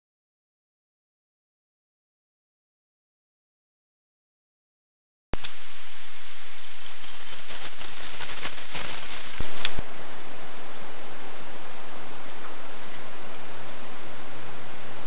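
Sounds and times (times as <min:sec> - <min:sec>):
crackling clicks: 0:05.4 - 0:05.6, 0:06.7 - 0:09.8
static hiss: 0:05.4 - 0:15.0.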